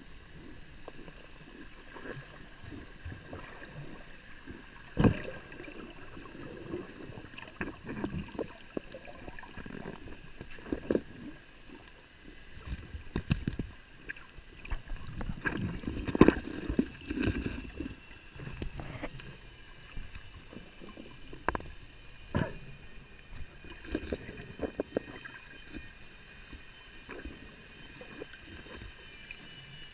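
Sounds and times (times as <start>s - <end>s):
faint high hum: 0.0s - 29.9s
water sloshing and gurgling: 0.0s - 29.9s
knocks and splashes: 5.0s - 5.4s.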